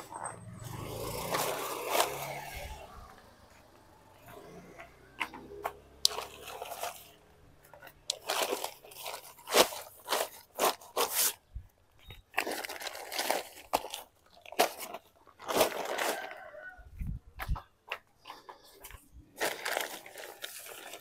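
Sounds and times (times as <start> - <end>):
nylon sheet crinkling: 0.0 - 2.8, 6.0 - 16.7, 18.9 - 21.0.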